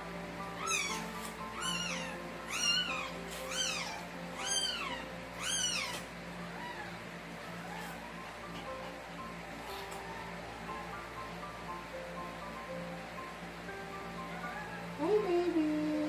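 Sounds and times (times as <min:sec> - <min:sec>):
puppy crying in high squeals: 0:00.5 - 0:08.2, 0:14.3 - 0:14.9.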